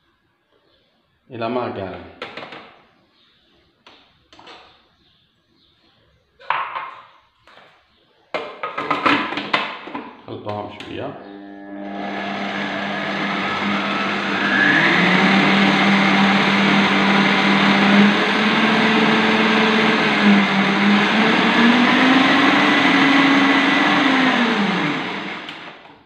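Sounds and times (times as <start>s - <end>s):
food processor motor hum: 11.2s - 26.0s
blade churning food: 11.7s - 25.6s.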